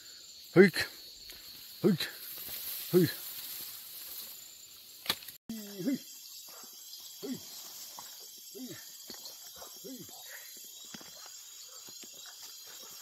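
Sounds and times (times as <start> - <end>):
crickets chirring: 0.0 - 13.0.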